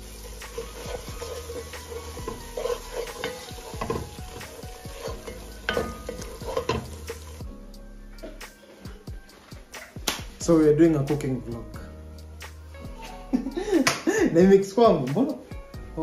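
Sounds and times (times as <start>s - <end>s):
wooden spoon scraping a pot: 0.0s - 7.4s
food sizzling: 0.0s - 11.4s.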